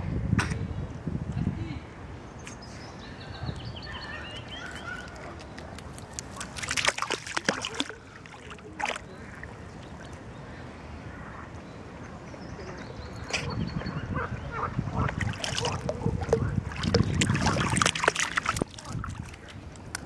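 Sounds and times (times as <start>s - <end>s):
dog splashing through water: 4.6s - 10.1s, 15.2s - 19.5s.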